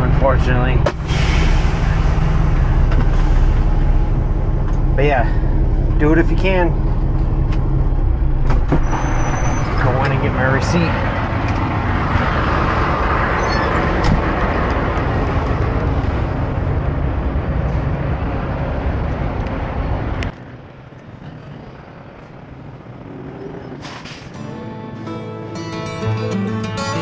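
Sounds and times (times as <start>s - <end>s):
truck engines idling: 0.0s - 27.0s
guitar music: 24.3s - 27.0s.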